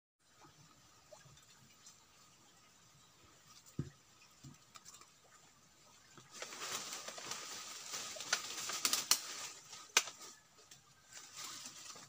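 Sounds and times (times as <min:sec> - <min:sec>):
leaves rustling underfoot: 0:05.8 - 0:12.0
twigs snapping: 0:06.4 - 0:10.4.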